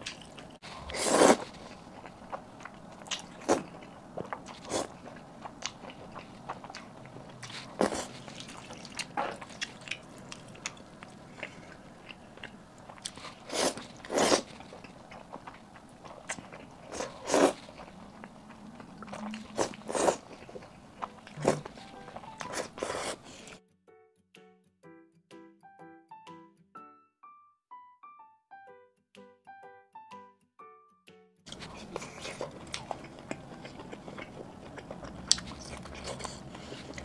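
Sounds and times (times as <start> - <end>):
noodles being slurped: 0.0 - 1.9, 7.3 - 10.8, 13.0 - 14.9, 16.3 - 18.0, 21.3 - 23.6
person chewing: 0.0 - 23.6, 31.5 - 37.0.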